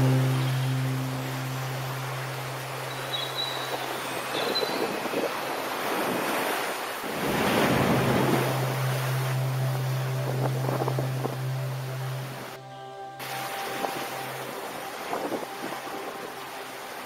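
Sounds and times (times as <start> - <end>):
low steady hum: 0.0 - 4.4, 7.6 - 17.0
surf breaking over rocks: 0.0 - 12.6
wind buffeting microphone: 3.5 - 12.6.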